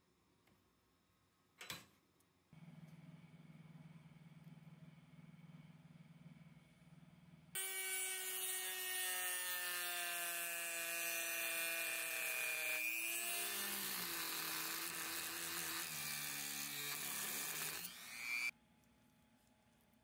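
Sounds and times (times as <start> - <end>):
power tool motor whining: 7.6 - 18.5.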